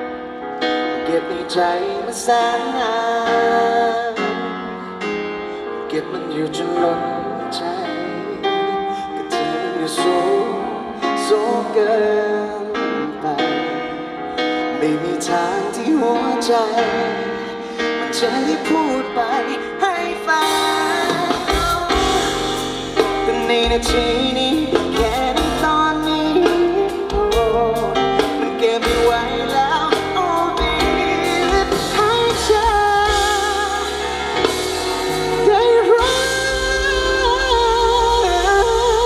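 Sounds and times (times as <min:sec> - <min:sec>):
person singing lead vocal: 0:00.0 - 0:39.0
drums: 0:15.2 - 0:39.0
bass guitar: 0:21.3 - 0:39.0.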